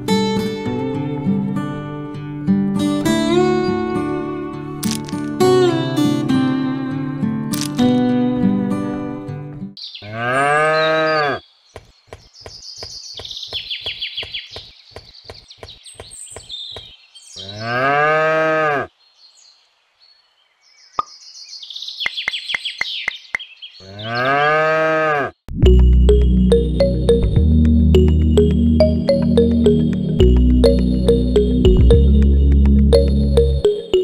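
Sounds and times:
cow mooing: 0:10.1 - 0:11.4, 0:17.4 - 0:18.9, 0:23.9 - 0:25.4.

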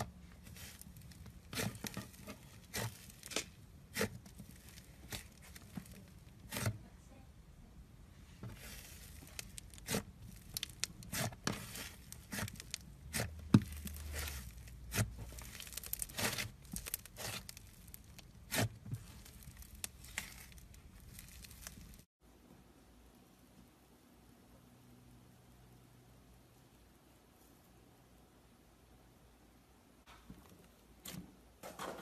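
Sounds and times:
slime crackling and tearing: 0:00.3 - 0:06.7, 0:08.6 - 0:22.1.

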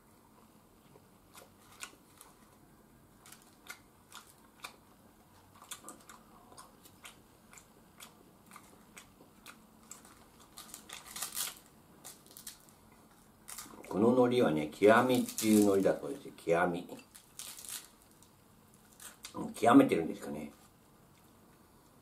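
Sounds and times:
person chewing: 0:03.2 - 0:13.9.

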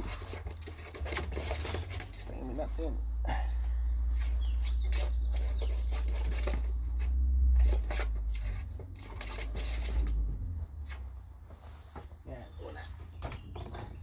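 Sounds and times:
pigeon rustling and scratching: 0:00.0 - 0:14.0
low rumble: 0:06.2 - 0:11.5.

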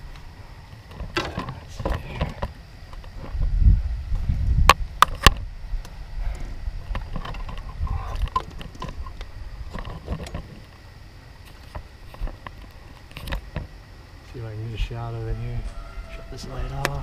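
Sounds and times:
wind buffeting microphone: 0:01.6 - 0:10.6.

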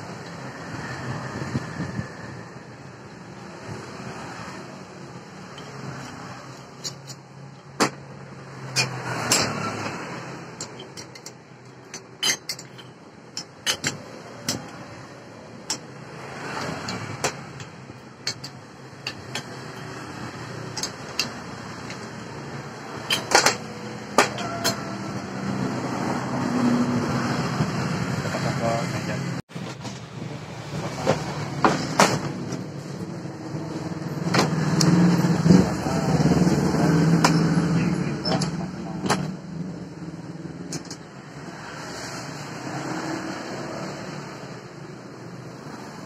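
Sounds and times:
metal parts clinking: 0:05.5 - 0:07.6, 0:10.6 - 0:14.8.

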